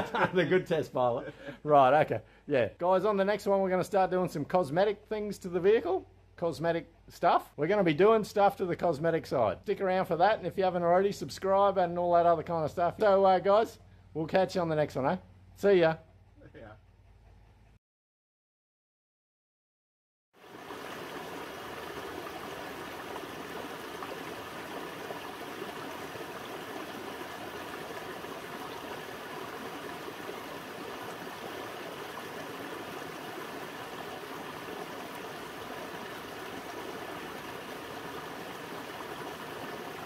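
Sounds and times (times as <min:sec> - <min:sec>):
stream running over rocks: 0:20.4 - 0:40.0.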